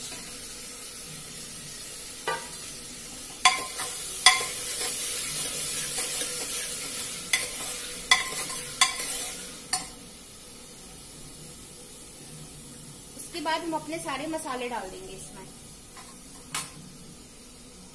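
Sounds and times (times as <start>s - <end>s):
vegetables sizzling in a pot: 0.0s - 17.9s
spoon clinking against a pot: 3.4s - 5.0s, 7.3s - 9.9s.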